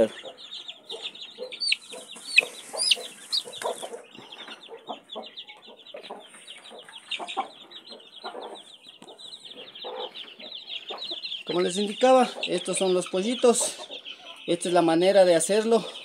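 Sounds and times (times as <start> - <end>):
low clucking calls: 0.0 - 14.9
chicks peeping: 0.0 - 16.0.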